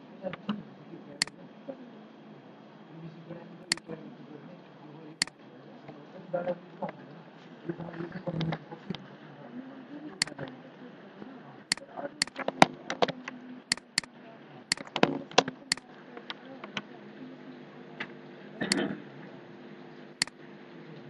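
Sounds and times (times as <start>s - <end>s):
steady hiss and hum: 0.0s - 21.0s
computer mouse clicking: 11.7s - 14.1s, 14.7s - 16.8s.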